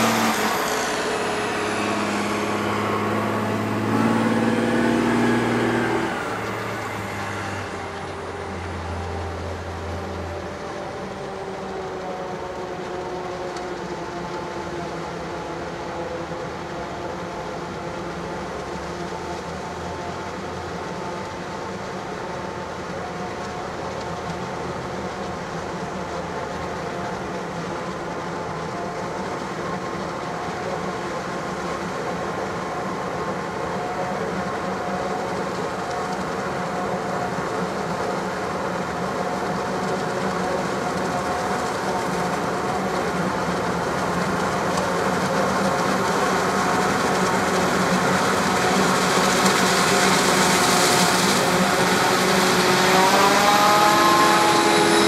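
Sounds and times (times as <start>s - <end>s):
forage harvester chopping drone: 0.0s - 11.7s, 33.8s - 55.0s.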